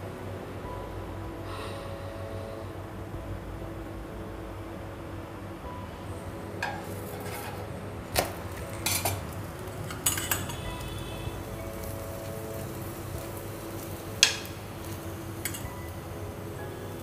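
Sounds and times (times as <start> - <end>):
metal utensils clinking on griddle: 6.6 - 10.9, 11.8 - 16.0.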